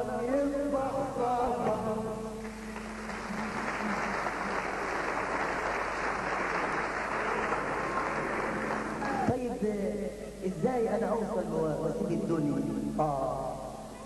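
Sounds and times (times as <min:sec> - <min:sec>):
man singing with instruments: 0:00.0 - 0:02.5, 0:09.1 - 0:14.0
audience applause: 0:02.4 - 0:09.3.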